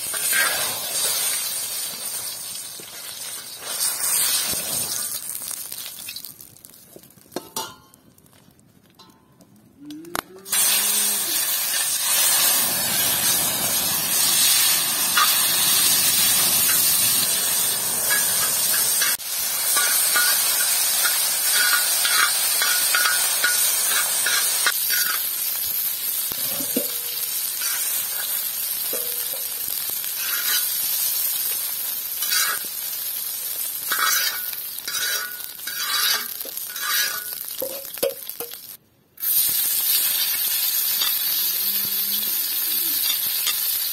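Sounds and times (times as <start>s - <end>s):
chicken sizzling on iron griddle: 0.0s - 6.4s, 10.5s - 43.9s
metal spatula scraping iron: 18.0s - 25.2s, 30.2s - 30.8s, 32.2s - 32.7s, 33.9s - 37.9s.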